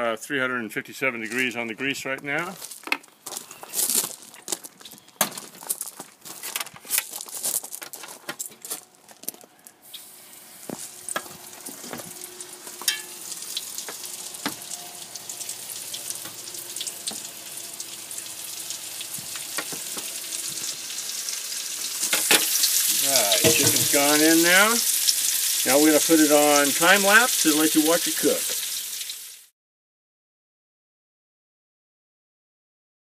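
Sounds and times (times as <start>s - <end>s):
oil sizzling: 9.8s - 29.5s.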